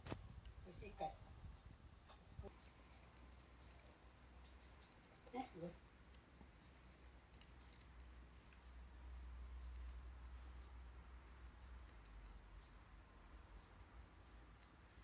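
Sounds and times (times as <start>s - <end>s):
low room hum: 0.0s - 15.0s
faint clicks: 2.1s - 8.8s.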